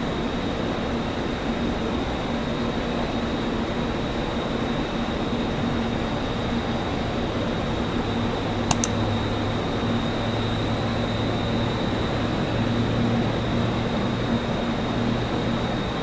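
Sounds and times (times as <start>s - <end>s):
quick clicks: 8.7s - 9.0s.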